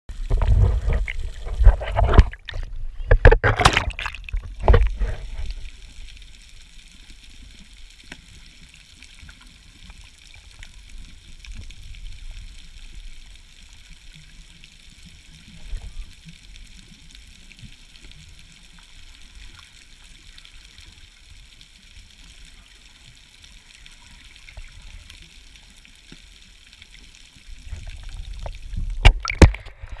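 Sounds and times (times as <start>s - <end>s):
underwater sloshing and thumps: 0.1s - 6.0s, 27.6s - 30.0s
steady underwater hiss: 4.3s - 30.0s.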